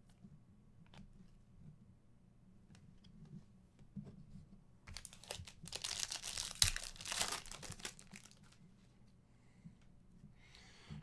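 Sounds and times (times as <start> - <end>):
foil wrapper crinkling: 4.9 - 8.6
foil wrapper ripping: 5.0 - 8.5.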